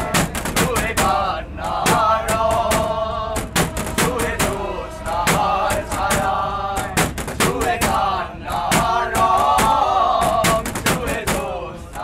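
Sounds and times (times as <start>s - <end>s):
loud percussive hits: 0.0s - 1.2s, 1.8s - 8.1s
voices singing together: 0.0s - 12.0s.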